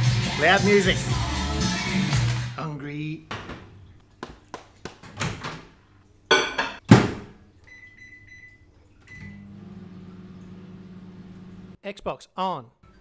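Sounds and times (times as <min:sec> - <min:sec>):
microwave humming: 0:06.3 - 0:11.8
keypad beeps: 0:07.7 - 0:09.4.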